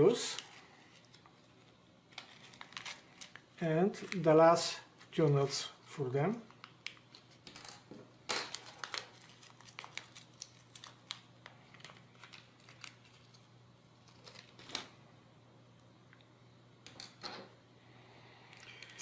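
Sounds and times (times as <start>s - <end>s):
plastic bag crackling: 2.1s - 5.2s, 8.5s - 14.9s.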